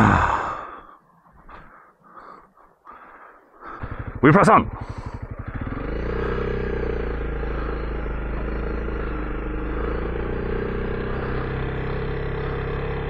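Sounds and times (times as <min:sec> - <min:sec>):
motorcycle engine running: 0:03.6 - 0:13.0.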